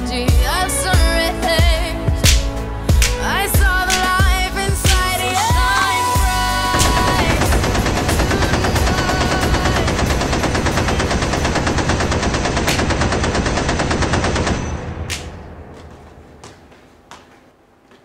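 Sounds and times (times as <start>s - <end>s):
machine-gun fire: 6.7s - 15.6s.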